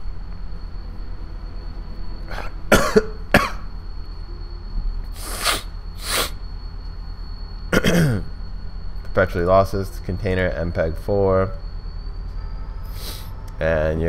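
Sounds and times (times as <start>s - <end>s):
steady low hum: 0.0s - 14.0s
man coughing: 2.4s - 3.7s, 7.7s - 8.3s.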